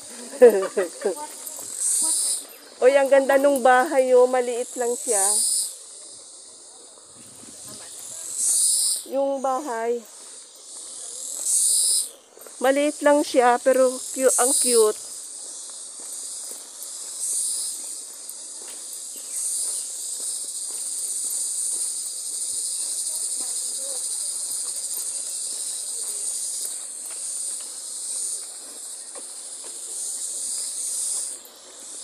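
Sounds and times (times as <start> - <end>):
footsteps on concrete: 0.0 - 4.4, 6.0 - 32.0
insects buzzing: 0.0 - 32.0.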